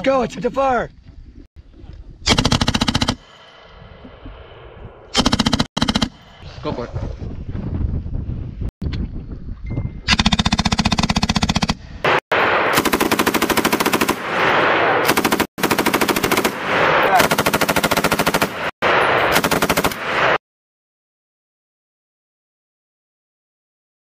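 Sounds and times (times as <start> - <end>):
machine gun automatic fire: 2.3 - 3.2, 5.1 - 6.2, 10.1 - 20.4.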